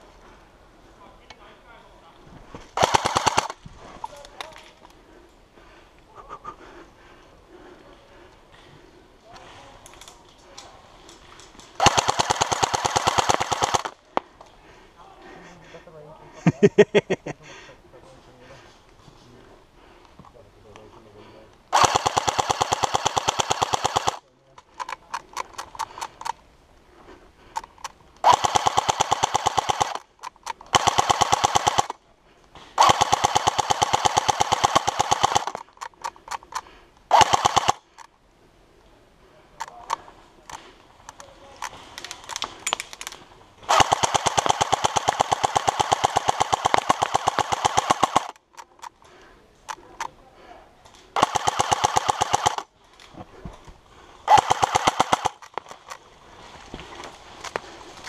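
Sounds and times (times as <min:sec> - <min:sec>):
airsoft gun full-auto bursts: 0:02.8 - 0:03.6, 0:11.8 - 0:14.0, 0:21.7 - 0:24.2, 0:28.2 - 0:32.0, 0:32.8 - 0:35.8, 0:37.1 - 0:38.0, 0:43.6 - 0:48.4, 0:51.2 - 0:52.7, 0:54.2 - 0:56.0
faint scattered cracks: 0:09.3 - 0:14.6, 0:39.6 - 0:50.2, 0:50.8 - 0:58.0.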